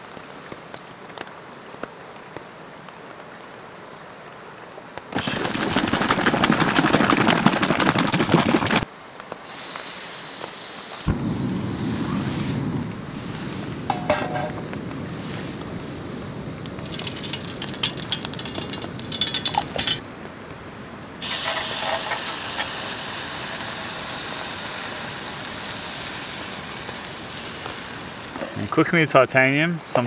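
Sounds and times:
batter sizzling in a hot pan: 16.7 - 20.0, 21.2 - 28.8.

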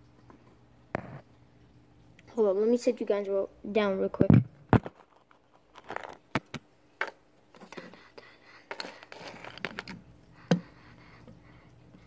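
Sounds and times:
rubbing and scraping on phone: 7.5 - 10.0.

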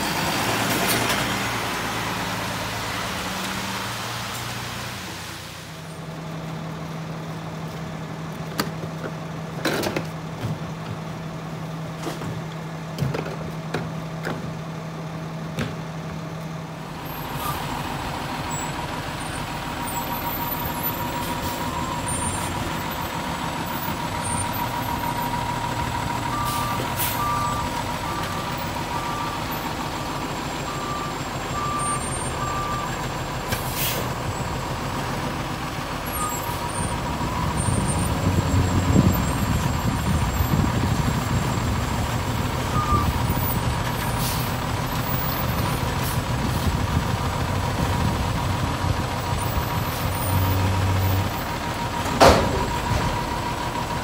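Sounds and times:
truck diesel engine running: 13.8 - 54.0
reversing alarm beeping: 26.2 - 29.6, 30.6 - 33.0, 42.7 - 43.6
air brake hisses: 33.6 - 34.1.

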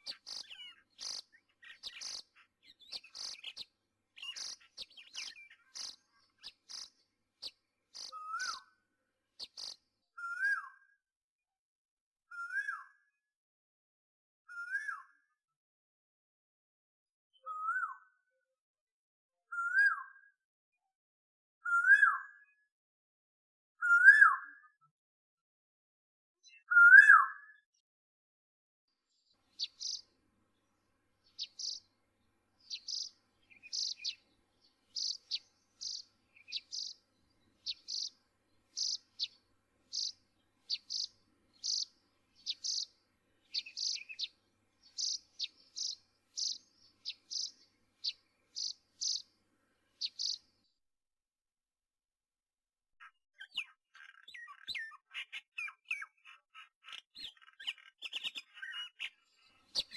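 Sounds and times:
bird chirping: 0.0 - 8.8, 9.4 - 10.7, 29.1 - 50.8, 53.0 - 59.9.

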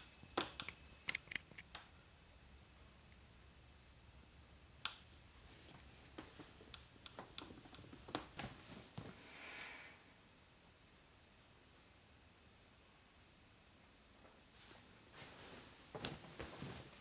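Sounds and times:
duvet rustling: 5.1 - 9.8, 14.4 - 17.0
soft clicks: 6.1 - 8.5.

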